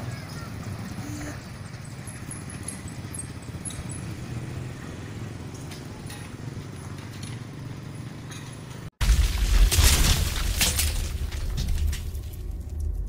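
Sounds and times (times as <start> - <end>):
distant vehicle rumble: 0.0 - 13.0.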